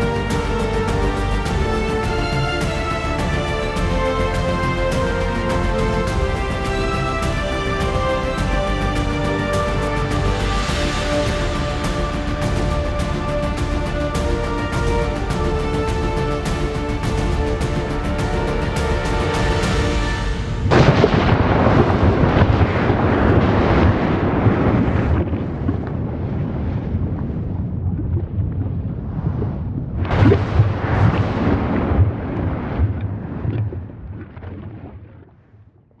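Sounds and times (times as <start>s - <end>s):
background music: 0.0s - 22.4s
wind buffeting microphone: 19.4s - 34.7s.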